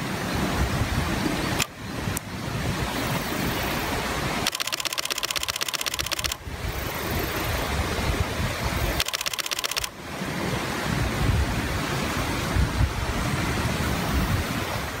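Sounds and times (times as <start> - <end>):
steady outdoor hiss: 0.0 - 15.0
rapid pulsing buzz: 4.5 - 6.5
wind buffeting microphone: 6.1 - 9.0, 10.0 - 15.0.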